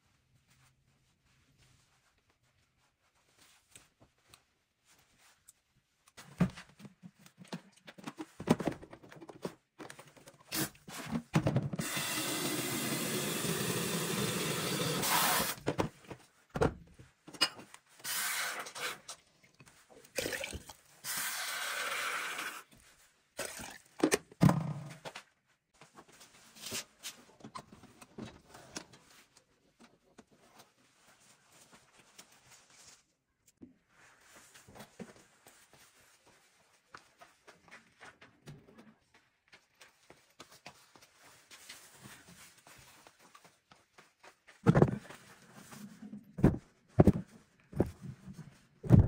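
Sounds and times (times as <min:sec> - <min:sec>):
knocks and handling sounds: 0:03.2 - 0:11.8, 0:40.4 - 0:49.0.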